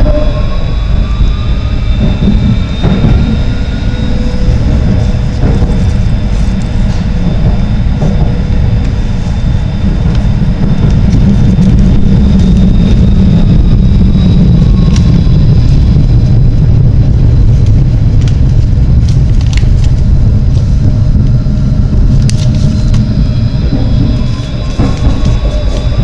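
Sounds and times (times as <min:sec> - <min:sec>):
faint high whine: 0:00.0 - 0:18.1
tram wheels rumbling on rails: 0:00.0 - 0:26.0.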